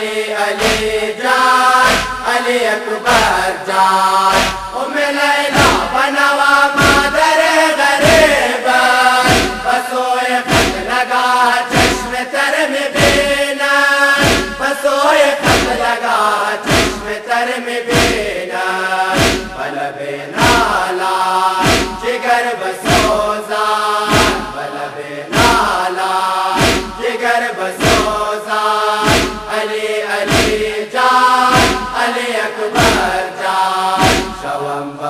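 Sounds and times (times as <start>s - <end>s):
male chorus chanting in unison: 0.0s - 35.0s
chest-beating thuds: 0.6s - 1.1s, 1.8s - 2.3s, 4.3s - 4.8s, 5.6s - 6.0s, 6.8s - 7.2s, 8.0s - 8.4s, 9.2s - 9.7s, 10.5s - 10.9s, 11.7s - 12.2s, 13.0s - 13.4s, 14.2s - 14.7s, 15.4s - 15.9s, 16.6s - 17.1s, 17.9s - 18.3s, 19.1s - 19.6s, 20.4s - 20.8s, 21.6s - 22.1s, 22.8s - 23.3s, 24.1s - 24.6s, 25.3s - 25.8s, 26.6s - 27.0s, 27.8s - 28.2s, 29.0s - 29.6s, 30.3s - 30.7s, 31.5s - 32.0s, 32.8s - 33.2s, 34.0s - 34.4s.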